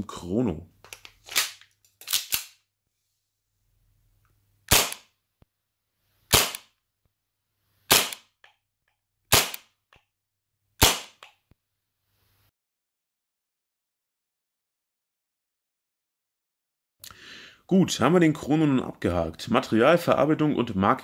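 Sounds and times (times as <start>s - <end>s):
airsoft pistol shots: 4.7s - 5.1s, 6.3s - 6.7s, 7.9s - 8.3s, 9.3s - 9.7s, 10.8s - 11.3s.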